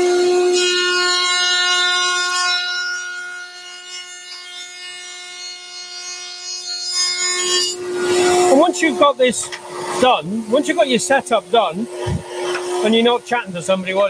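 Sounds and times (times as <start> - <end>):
router high whine: 6.6 - 14.0.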